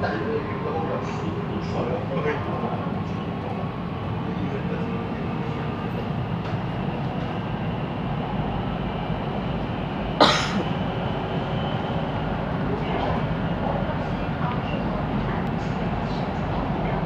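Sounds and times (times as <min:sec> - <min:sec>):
train running rumble: 0:00.0 - 0:17.0.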